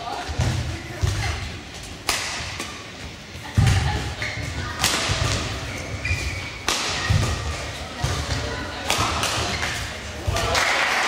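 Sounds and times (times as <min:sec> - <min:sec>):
racket hitting shuttlecock: 0:02.0 - 0:02.8, 0:04.8 - 0:05.6, 0:06.2 - 0:10.5.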